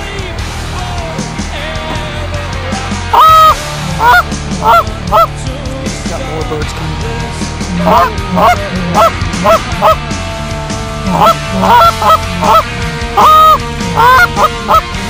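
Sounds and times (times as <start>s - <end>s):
goose call honks and clucks: 3.1s - 5.3s, 7.7s - 10.0s, 11.0s - 15.0s.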